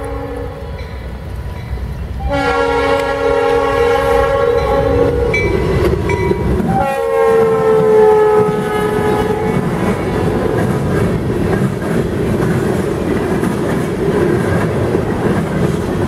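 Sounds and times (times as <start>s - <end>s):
locomotive air horn blasts: 0.0s - 0.8s, 2.2s - 5.5s, 6.6s - 9.8s
diesel locomotive and wheels rumbling: 0.0s - 16.0s.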